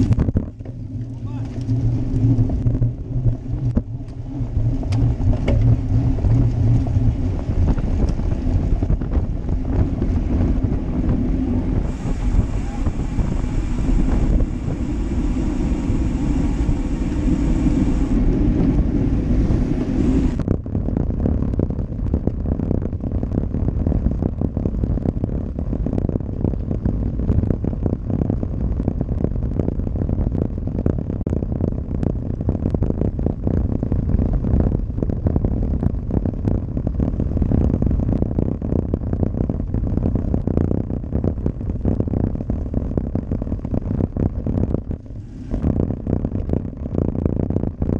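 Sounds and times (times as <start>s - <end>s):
bike rattling over paving stones: 0.0s - 10.9s
wind rushing over microphone: 0.0s - 47.9s.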